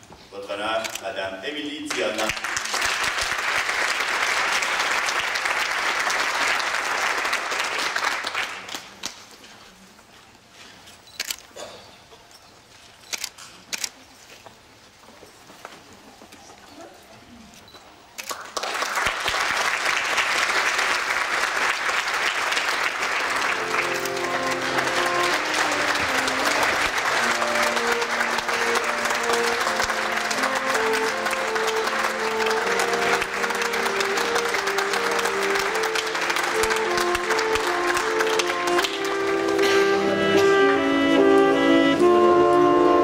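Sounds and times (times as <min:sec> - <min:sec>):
audience applauding: 0:01.9 - 0:09.2, 0:18.2 - 0:40.7
live instrumental music: 0:22.5 - 0:43.0.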